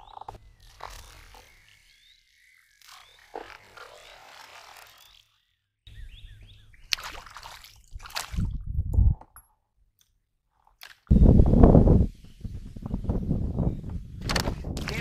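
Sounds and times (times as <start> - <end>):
low rumble of water: 6.0 - 9.2
fish splashing at surface: 6.9 - 8.5.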